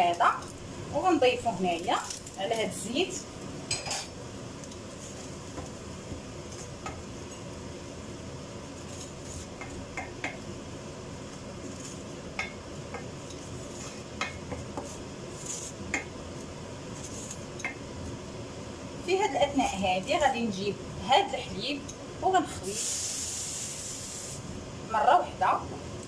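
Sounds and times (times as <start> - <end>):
spatula stirring in hot oil: 1.7 - 10.6, 11.2 - 18.2.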